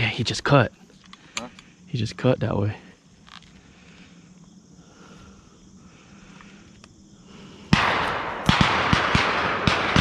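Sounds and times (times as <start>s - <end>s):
shotgun shots with echo: 7.7s - 10.0s.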